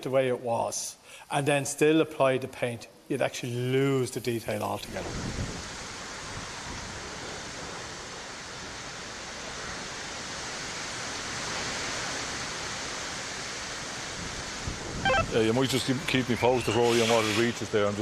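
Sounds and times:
rushing wind: 5.0s - 5.8s.

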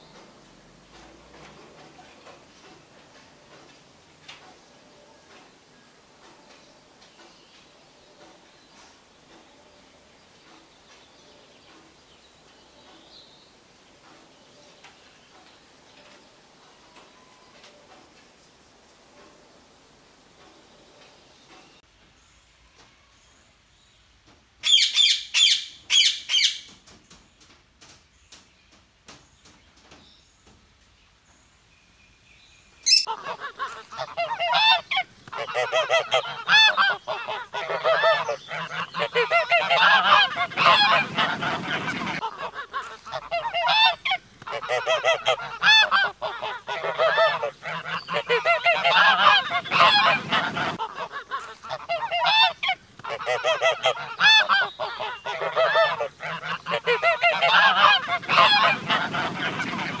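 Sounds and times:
geese honking: 32.9s - 60.0s.

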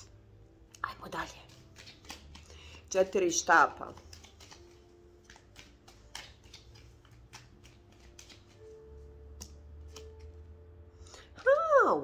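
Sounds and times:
soft background music: 0.0s - 12.0s
cards clicking and snapping: 1.1s - 10.4s.

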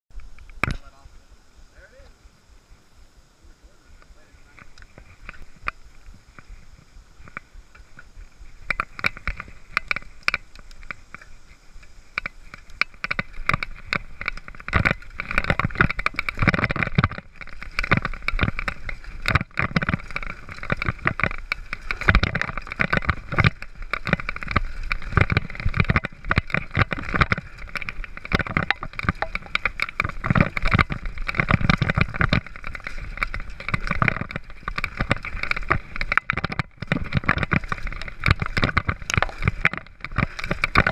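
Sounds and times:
bike tyre noise on dirt: 0.1s - 40.9s
bike rattling and knocking: 4.5s - 40.9s.

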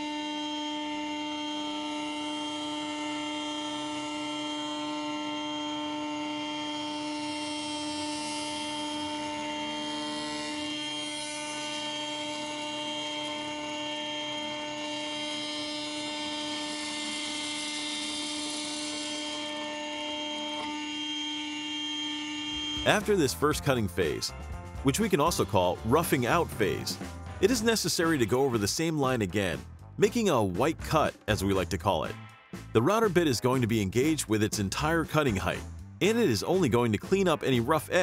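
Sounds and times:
router spindle whine: 0.0s - 23.1s
hissing cutting noise: 2.1s - 24.3s.

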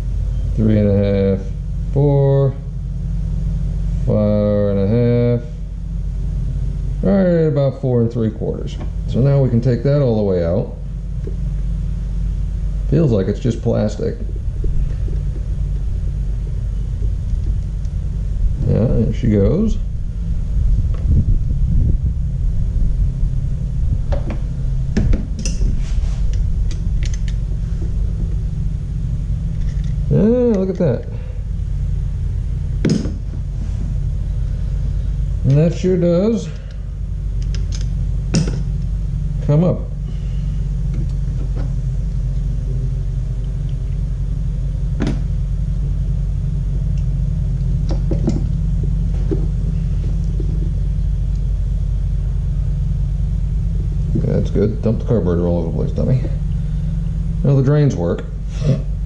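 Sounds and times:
low machine hum: 0.0s - 59.0s
steady low rumble: 0.0s - 59.0s
metal parts clicking: 29.5s - 30.0s.

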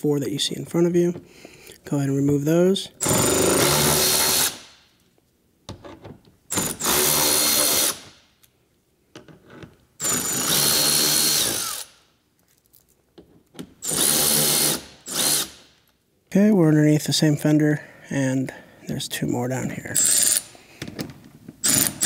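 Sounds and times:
cordless electric ratchet spinning: 10.0s - 11.9s, 20.0s - 20.5s, 21.6s - 22.0s.

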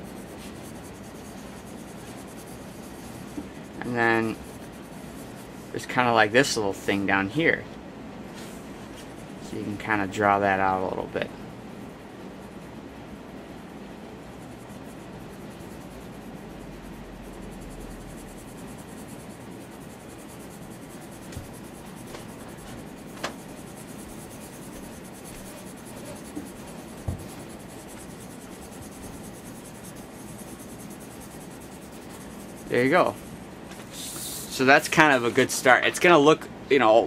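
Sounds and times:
pencil scribbling on paper: 0.0s - 7.0s, 11.8s - 34.1s.

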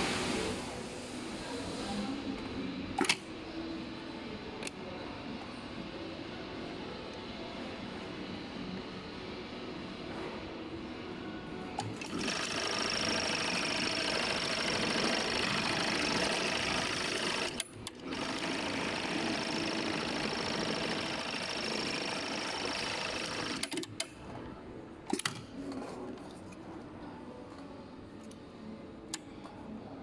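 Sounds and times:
sewing machine sharp clicks: 11.8s - 24.1s
sewing machine stitching with whine: 11.9s - 23.8s.

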